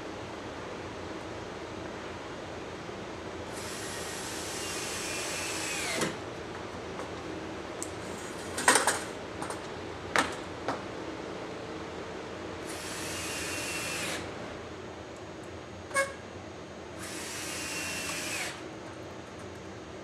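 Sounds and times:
power drill driving a screw: 0:03.5 - 0:06.2, 0:12.7 - 0:14.3, 0:17.0 - 0:18.6.

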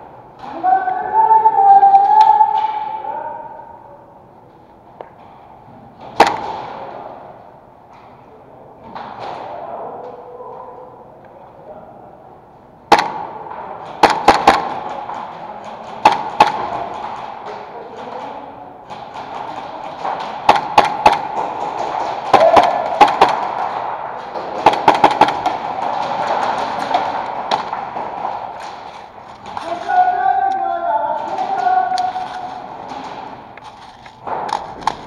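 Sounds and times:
airsoft guns firing: 0:06.0 - 0:07.3, 0:12.9 - 0:18.2, 0:18.8 - 0:35.0.

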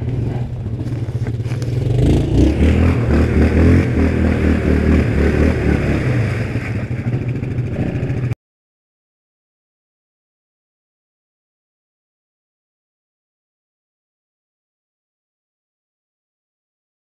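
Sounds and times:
quad engine revving hard: 0:00.0 - 0:08.3.

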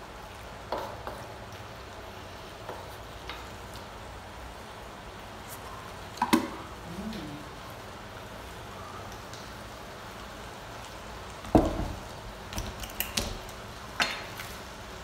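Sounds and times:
low hiss: 0:01.7 - 0:15.0.

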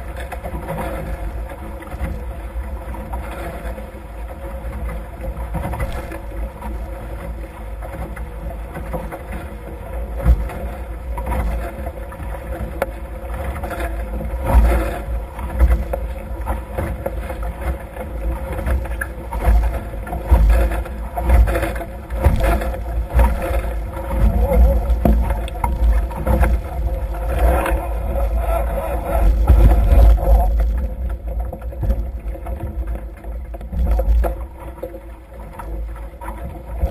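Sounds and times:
water rushing past hulls: 0:00.0 - 0:36.9
wind rumbling on microphone: 0:00.0 - 0:36.9.

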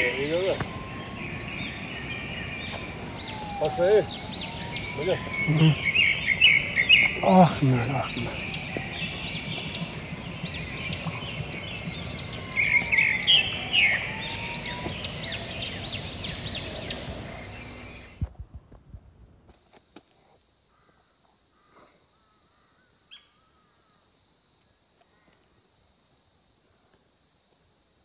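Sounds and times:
high-pitched insect drone: 0:00.0 - 0:18.1, 0:19.5 - 0:24.3
birds chirping: 0:00.0 - 0:18.2.

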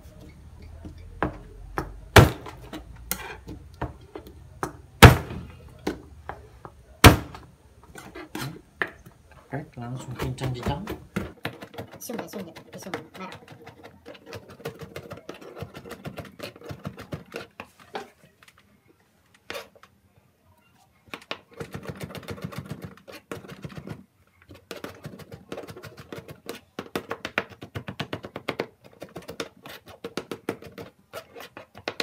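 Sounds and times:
knife chopping on cutting board: 0:01.2 - 0:04.0, 0:04.6 - 0:06.0, 0:07.0 - 0:07.4.

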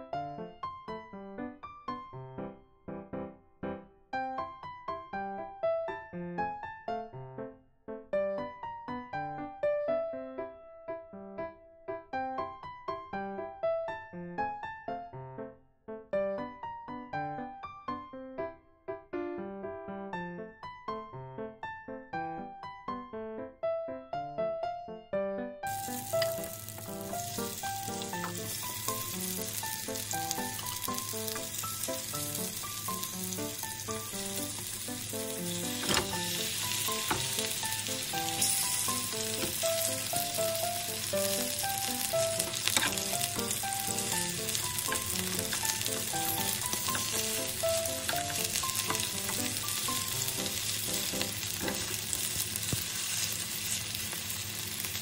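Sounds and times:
quiet background music: 0:22.4 - 0:54.9
patties sizzling in oil: 0:25.7 - 0:55.0.

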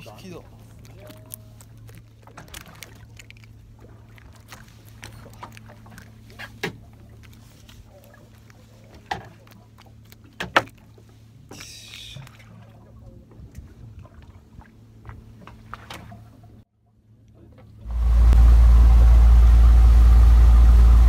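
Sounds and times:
boat engine idling: 0:17.7 - 0:21.0.

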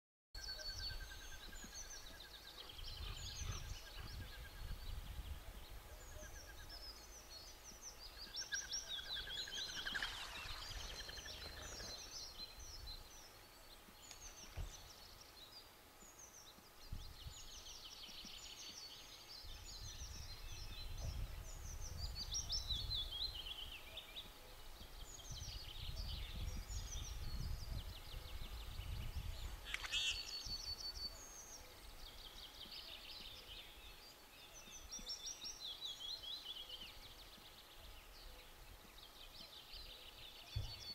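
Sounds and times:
songbirds singing: 0:00.4 - 0:40.9
wind rumble on microphone: 0:00.8 - 0:07.0, 0:16.8 - 0:18.4, 0:19.3 - 0:24.0, 0:24.7 - 0:29.7.

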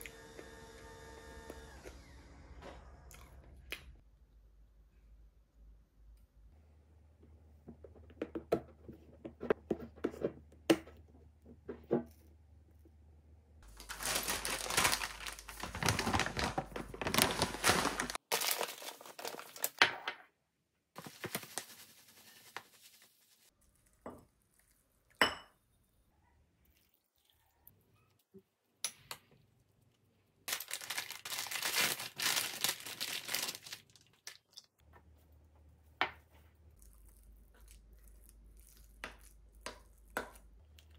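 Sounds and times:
packaging tearing and crinkling: 0:13.7 - 0:19.8, 0:30.5 - 0:34.5.

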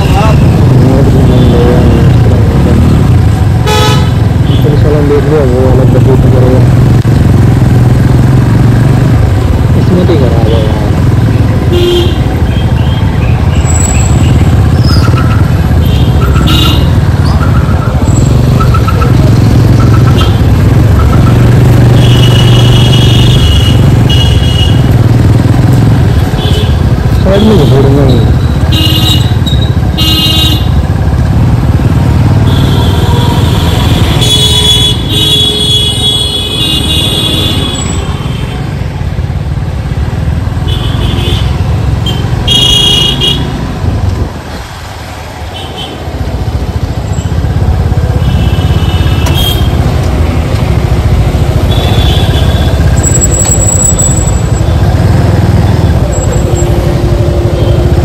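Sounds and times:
traffic rumble: 0:00.0 - 0:58.0
wind: 0:00.0 - 0:58.0
vehicle horns honking: 0:03.6 - 0:04.8, 0:11.7 - 0:12.8, 0:13.7 - 0:17.4, 0:18.0 - 0:25.0, 0:26.2 - 0:30.8, 0:32.4 - 0:38.7, 0:40.6 - 0:43.7, 0:48.0 - 0:49.9, 0:51.5 - 0:55.1, 0:55.8 - 0:58.0.

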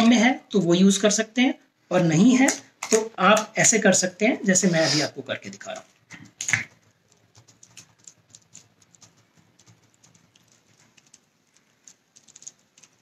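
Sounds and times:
foil packet and tape crinkling: 0:05.7 - 0:13.0.

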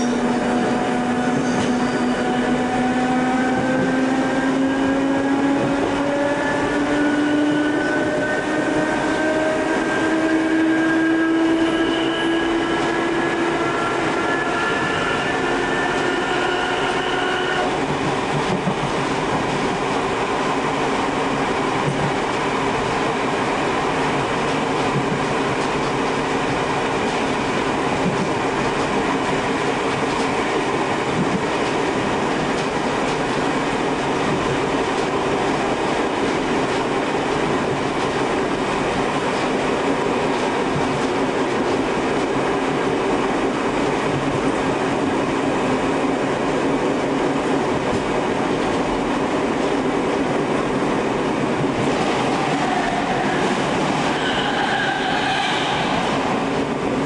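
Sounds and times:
passing train pitched tones: 0:00.0 - 0:18.6, 0:51.6 - 0:57.0
train wheels rumbling on rails: 0:00.0 - 0:57.0.

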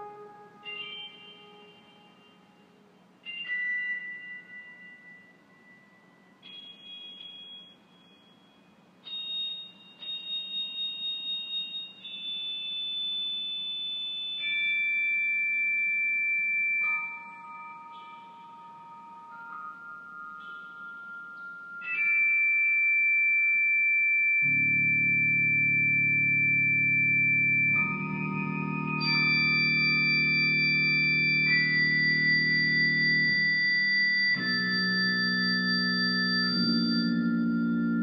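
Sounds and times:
organ sustained chords: 0:00.0 - 0:02.6, 0:24.4 - 0:38.0.

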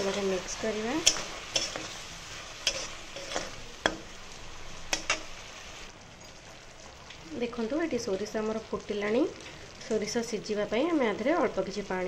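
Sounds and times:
spatula scraping a pan: 0:00.0 - 0:04.0
paste sizzling in oil: 0:00.0 - 0:05.9.

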